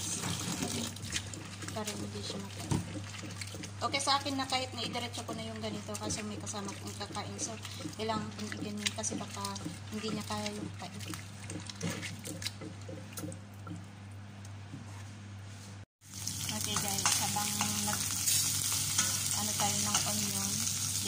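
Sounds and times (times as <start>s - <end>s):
gourd slices squeezed in water: 0.0s - 14.0s
wooden spatula stirring: 0.0s - 15.2s
garlic and onion sizzling in oil: 16.0s - 21.0s.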